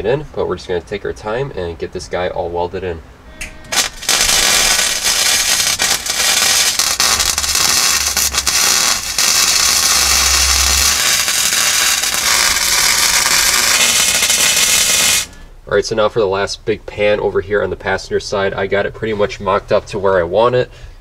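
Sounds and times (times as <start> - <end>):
welding arc crackling: 3.4 - 15.4.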